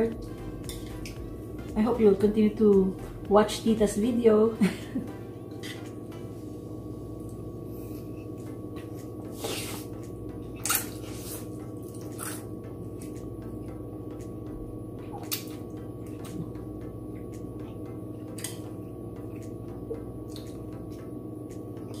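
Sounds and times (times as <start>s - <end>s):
steady low hum: 0.0s - 22.0s
slurping noodles: 9.3s - 10.0s
wet chewing: 9.4s - 13.3s, 15.0s - 16.6s, 20.2s - 21.0s.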